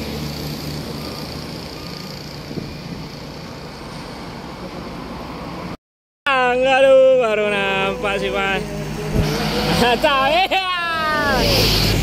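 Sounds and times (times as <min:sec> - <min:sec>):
highway traffic passing: 0:00.0 - 0:12.0.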